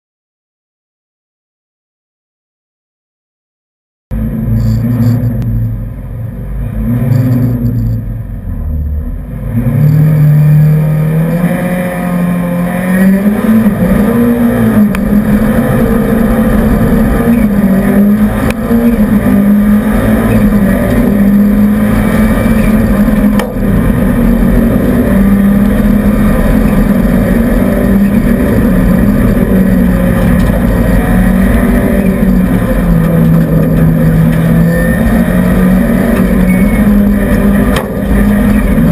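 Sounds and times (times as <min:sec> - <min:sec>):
rally car engine at full throttle: 0:04.1 - 0:38.9.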